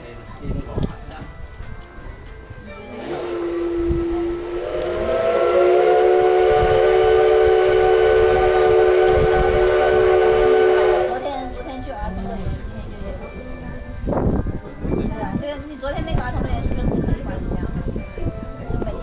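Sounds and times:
steam hissing: 2.9 - 11.2
steam whistle blast: 2.9 - 11.2.

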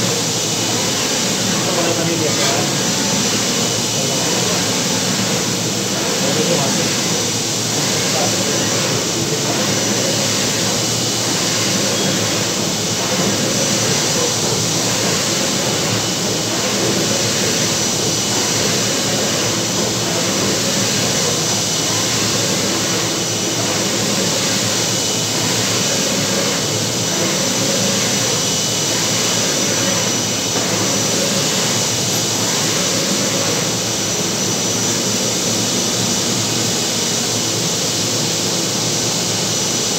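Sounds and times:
printer fans and machinery whirring: 0.0 - 39.9.

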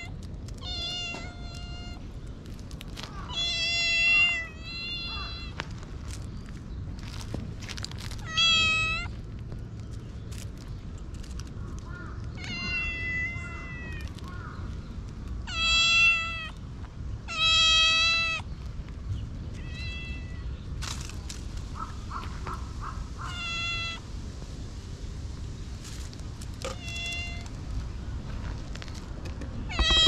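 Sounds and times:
cat meowing: 0.0 - 2.0, 3.1 - 5.6, 8.2 - 9.1, 12.4 - 14.1, 15.5 - 16.6, 19.6 - 20.5, 23.2 - 24.0, 26.6 - 27.5, 29.7 - 30.0.

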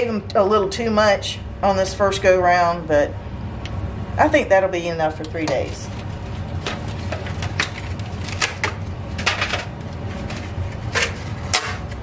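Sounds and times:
foil pans clicking and crinkling: 5.6 - 12.0.

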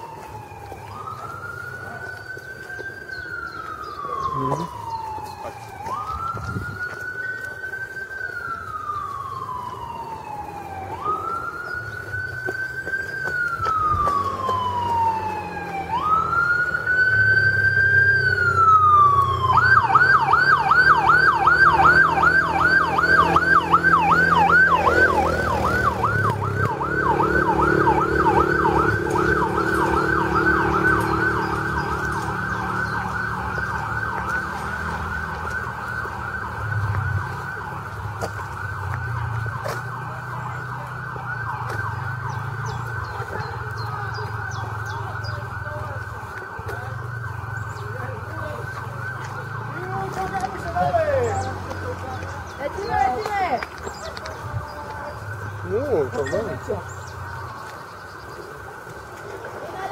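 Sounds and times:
electronic siren wailing and yelping: 0.0 - 45.7.

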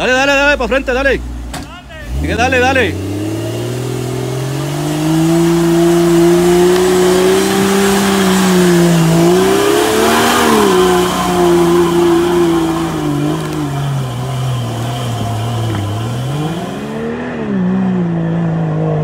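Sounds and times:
off-road vehicle engine revving: 0.0 - 19.0.

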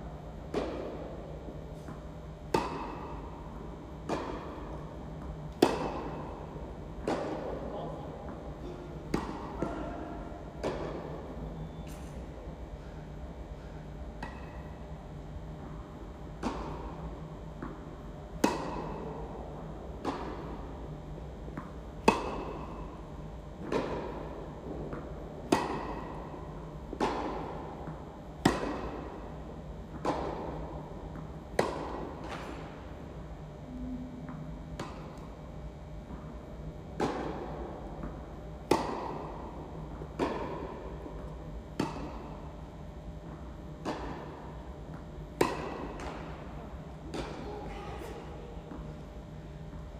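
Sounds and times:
tennis racquet strikes: 0.5 - 3.3, 4.0 - 7.6, 9.1 - 10.0, 10.6 - 11.2, 13.6 - 14.8, 16.4 - 19.2, 19.9 - 20.5, 21.6 - 22.8, 23.6 - 26.3, 26.9 - 29.3, 29.9 - 32.8, 37.0 - 42.4, 43.2 - 46.4
tennis ball bounces: 1.8 - 7.6, 8.3 - 9.8, 10.6 - 11.3, 14.2 - 14.8, 16.4 - 20.6, 21.5 - 22.8, 23.6 - 26.2, 26.9 - 29.3, 29.9 - 32.8, 37.0 - 42.4, 43.2 - 46.4.

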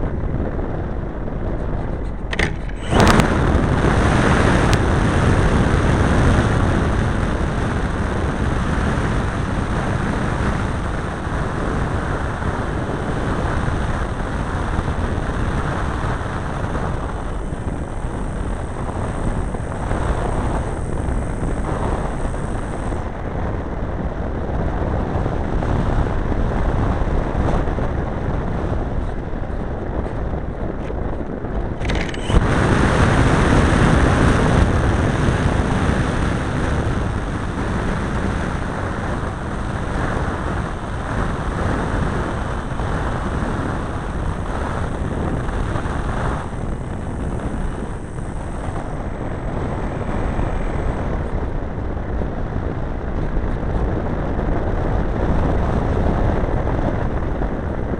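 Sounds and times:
air rumble on microphone: 0.0 - 57.9
model airplane engine: 0.0 - 57.9.

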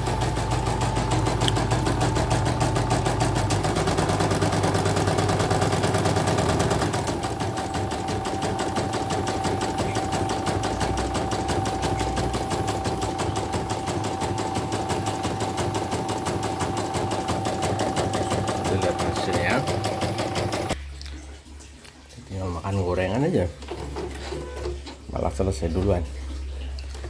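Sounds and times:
embroidery machine needle ticking: 0.0 - 20.8.

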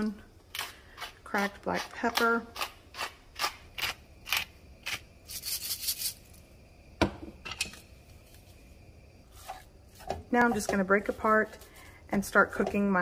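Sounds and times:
pepper mill grinding: 0.5 - 6.3.

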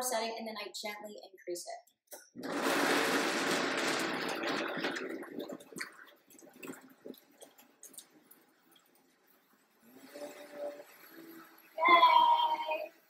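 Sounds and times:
blender motor winding down: 2.4 - 4.9, 9.8 - 13.0.

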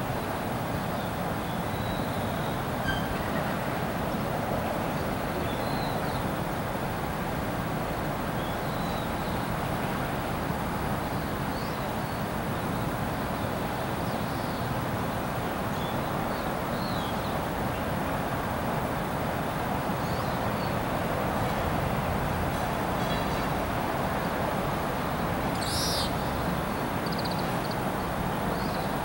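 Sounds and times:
small birds chirping faintly: 22.5 - 29.0.

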